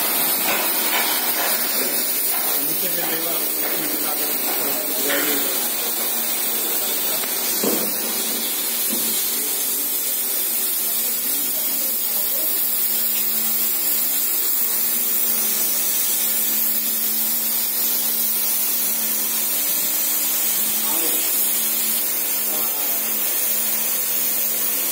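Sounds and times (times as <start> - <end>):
loud hiss: 0.0 - 24.9.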